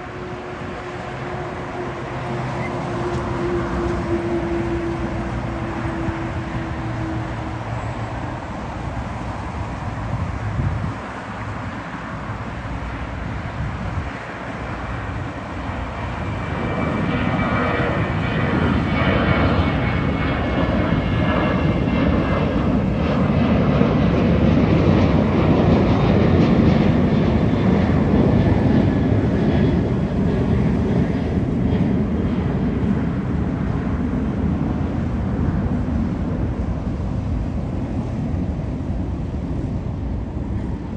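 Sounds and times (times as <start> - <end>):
high engine whine: 0.0 - 40.9
jet engines running: 0.0 - 40.9.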